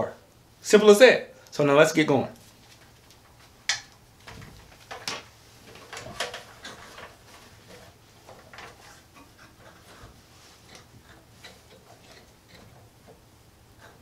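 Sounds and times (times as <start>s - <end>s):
wires scraping through metal: 5.6s - 14.0s.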